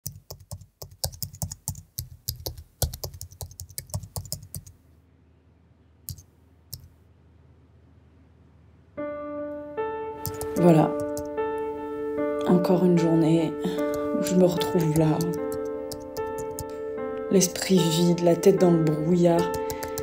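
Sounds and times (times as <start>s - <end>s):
fast typing on laptop keyboard: 0.0s - 4.7s, 10.2s - 11.3s, 13.8s - 16.7s, 19.4s - 20.0s
music with sustained notes: 9.0s - 20.0s.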